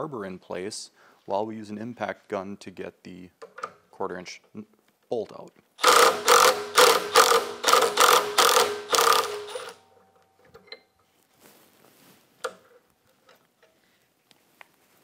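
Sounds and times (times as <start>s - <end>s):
impact driver hammering: 5.8s - 9.8s.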